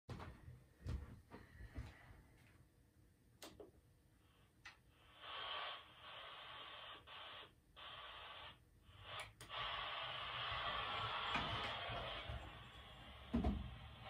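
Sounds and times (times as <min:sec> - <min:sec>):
guitar amp static hiss: 0:04.9 - 0:14.0.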